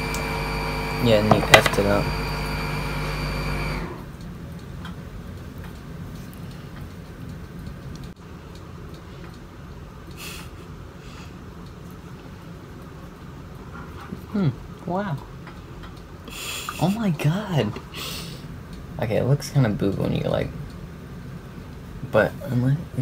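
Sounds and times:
machine hum with high whine: 0:00.0 - 0:17.9
faint low room hum: 0:00.0 - 0:23.0.

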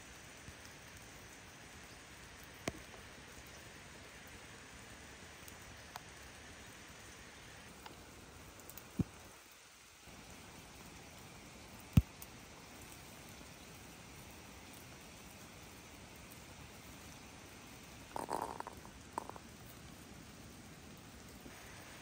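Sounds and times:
rain pattering on leaves: 0:00.0 - 0:22.0.

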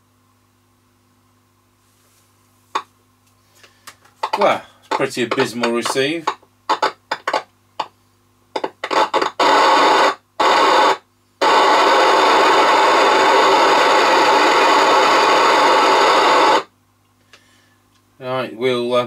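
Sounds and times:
radio static hiss: 0:04.2 - 0:16.7.

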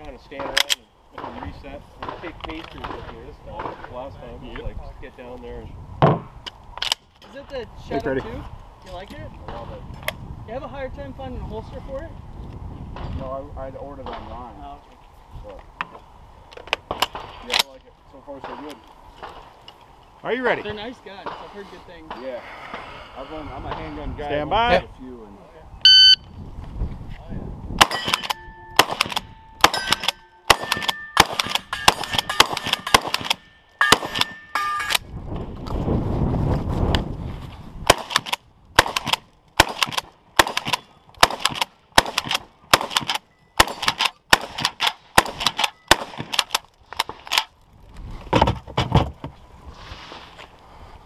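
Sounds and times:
gun handling noise: 0:00.4 - 0:03.0, 0:06.4 - 0:07.4, 0:27.8 - 0:35.8, 0:37.9 - 0:47.6
shot timer beep: 0:25.8 - 0:26.3
shotgun shots: 0:27.8 - 0:35.0, 0:37.9 - 0:47.5
steel targets ringing: 0:27.8 - 0:35.0
rapid gunfire: 0:28.8 - 0:34.3, 0:37.9 - 0:46.6.

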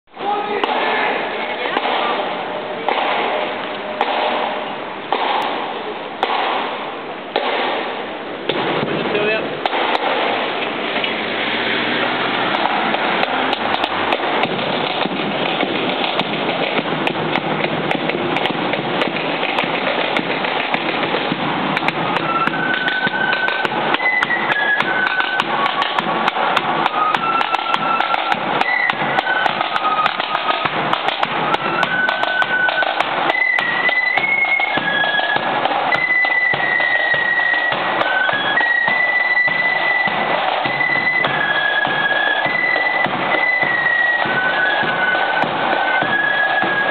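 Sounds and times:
drums beating march rhythm: 0:00.1 - 0:46.9
high flute melody: 0:21.8 - 0:46.9.

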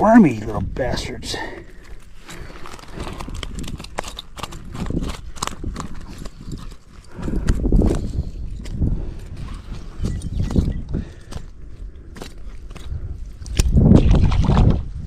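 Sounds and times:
handling clicks and knocks: 0:02.2 - 0:09.4.

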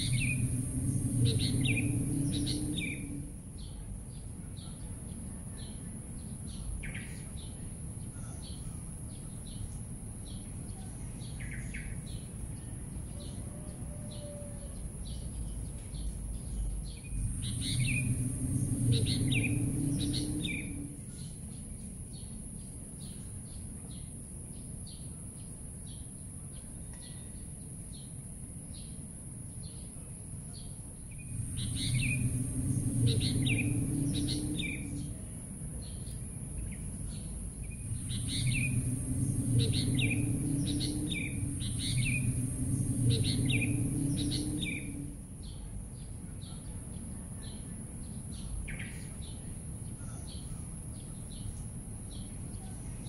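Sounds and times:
low rumble: 0:00.0 - 0:04.4, 0:15.3 - 0:22.3, 0:31.0 - 0:46.3
birds chirping: 0:00.0 - 0:12.4, 0:15.4 - 0:22.4, 0:30.6 - 0:52.7
steady high-pitched hiss: 0:00.0 - 0:13.4, 0:14.8 - 0:53.0.

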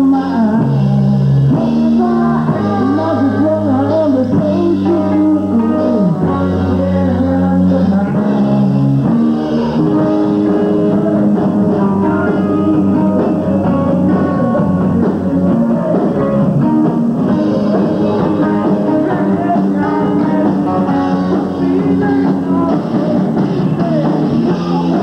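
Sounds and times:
bass guitar: 0:00.0 - 0:25.0
drums: 0:00.0 - 0:25.0
electric guitars: 0:00.0 - 0:25.0
live rock band playing: 0:00.0 - 0:25.0.

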